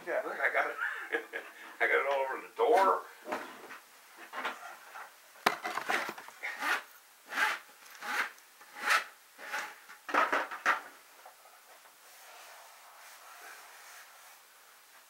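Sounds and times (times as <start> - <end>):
scratchy rubbing strokes: 6.4 - 9.8, 12.0 - 15.0.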